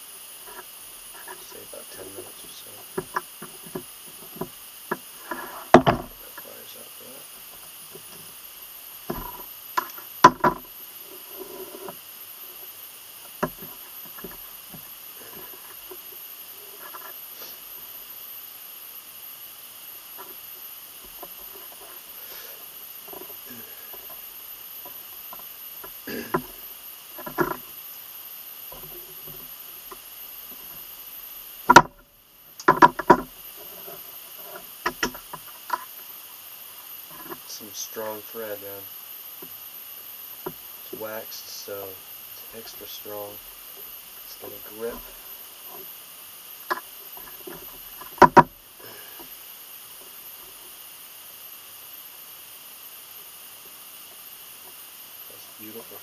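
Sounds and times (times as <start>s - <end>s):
faint steady hiss: 0.0s - 56.0s.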